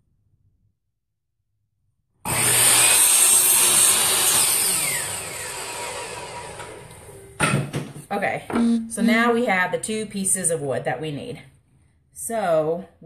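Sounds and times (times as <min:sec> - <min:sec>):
miter saw cutting wood: 0:02.3 - 0:07.1.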